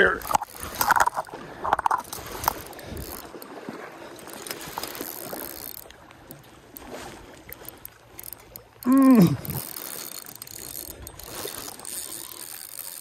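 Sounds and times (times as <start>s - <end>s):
fishing reel clicking and whirring: 0.0s - 13.0s.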